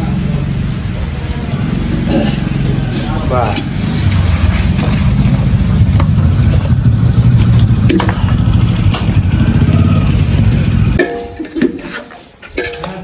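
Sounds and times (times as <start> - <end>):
loud low engine rumble: 0.0 - 11.4
metal pot clinking: 10.9 - 13.0.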